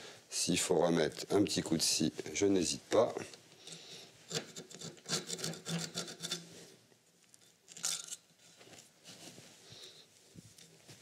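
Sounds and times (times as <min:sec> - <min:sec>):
hacksaw rasping on pipe: 0:04.3 - 0:06.5.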